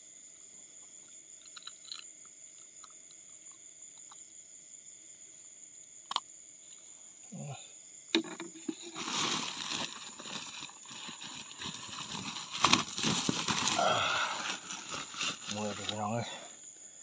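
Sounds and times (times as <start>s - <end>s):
night insects trilling: 0.0s - 17.0s
rustling and scuffing handling: 8.6s - 16.3s.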